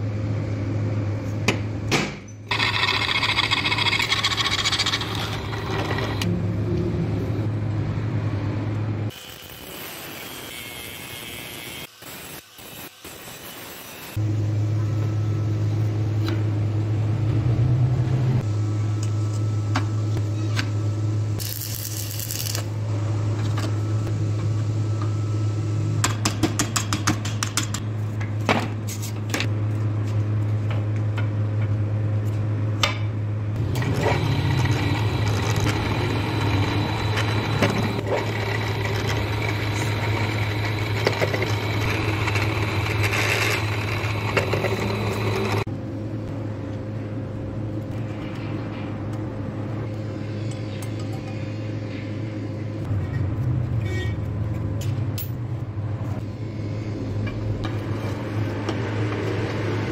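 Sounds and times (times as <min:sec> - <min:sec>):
rasping mechanical noise: 0:02.5 - 0:06.4, 0:33.6 - 0:45.7.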